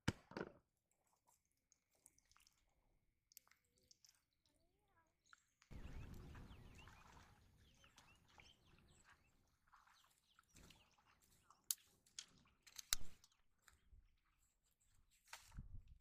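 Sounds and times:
faint bird chirps: 4.4s - 11.7s
sharp clicks: 12.7s - 13.4s.

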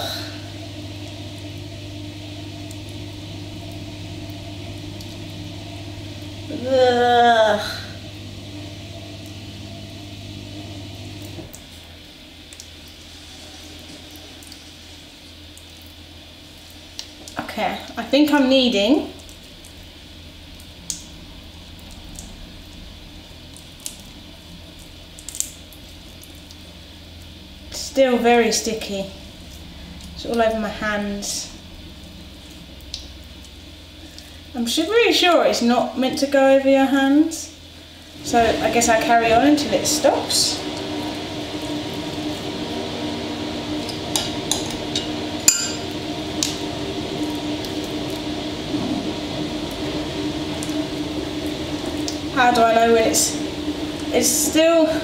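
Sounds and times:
glass bowl clinking: 44.2s - 46.0s.

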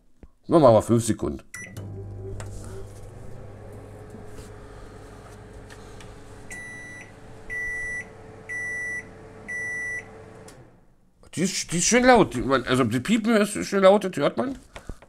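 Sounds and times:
microwave oven humming: 1.7s - 10.9s
loud beeps: 6.6s - 10.1s.

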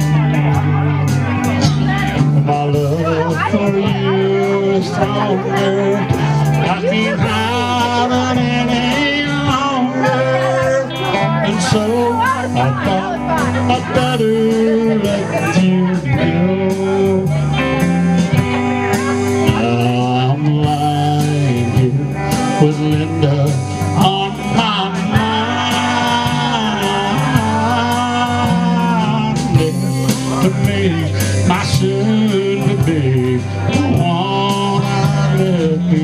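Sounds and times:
country band playing slow ballad: 0.0s - 36.0s
pedal steel guitar sliding notes: 0.0s - 36.0s.

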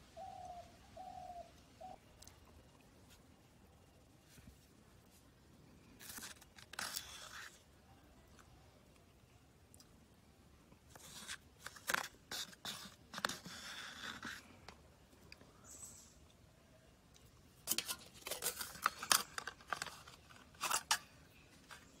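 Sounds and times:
plastic cup and foil crinkling: 5.8s - 7.7s, 10.9s - 14.6s, 17.6s - 22.0s.

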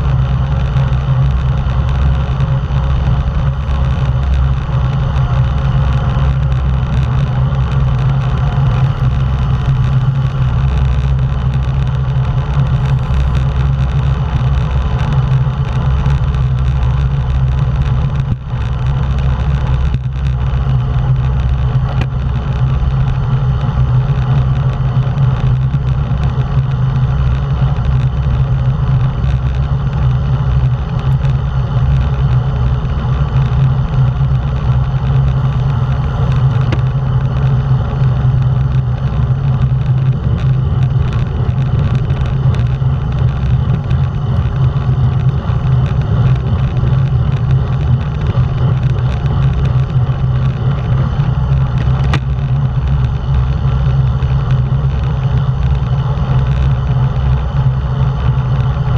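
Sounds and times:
wind rushing over microphone: 0.0s - 58.9s.

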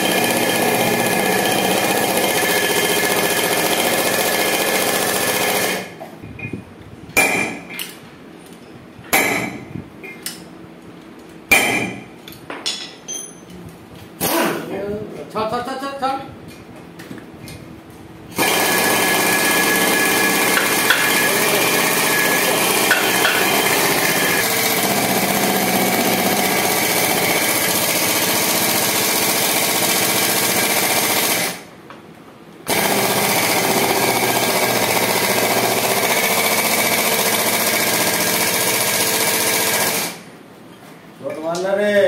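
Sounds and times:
pneumatic tool running: 0.0s - 6.0s, 18.3s - 31.7s, 32.7s - 40.3s.

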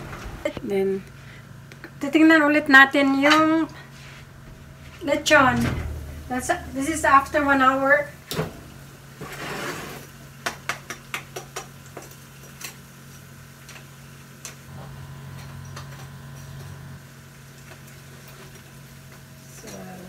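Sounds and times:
oven rack sliding: 0.0s - 0.6s, 5.0s - 10.1s
low steady hum: 0.0s - 9.2s, 14.7s - 18.0s.

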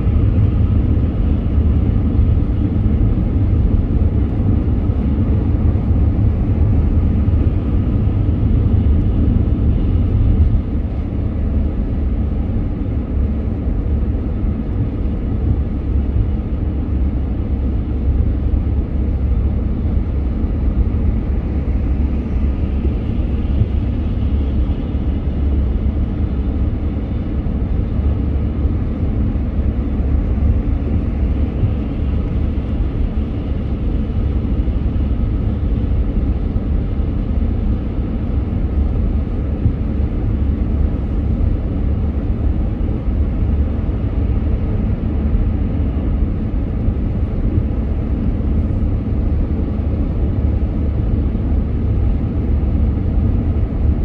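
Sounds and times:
car driving in traffic: 0.0s - 54.0s.

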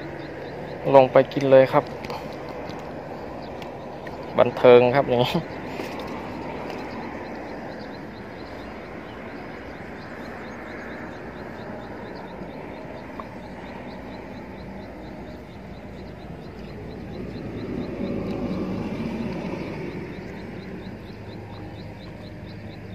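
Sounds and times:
distant engines rumbling: 0.0s - 22.9s
faint high regular chirping: 0.0s - 22.9s.

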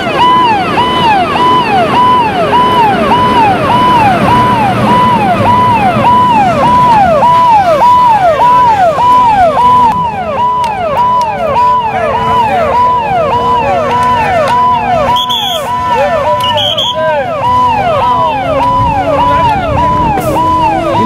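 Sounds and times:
fire engine siren wailing: 0.0s - 21.0s
vehicle engine rumble: 0.0s - 21.0s.

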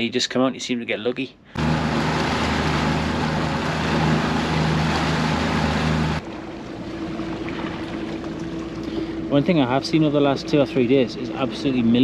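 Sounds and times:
wind: 0.0s - 12.0s
rushing water: 1.6s - 11.8s
outboard motor drone: 1.6s - 12.0s.

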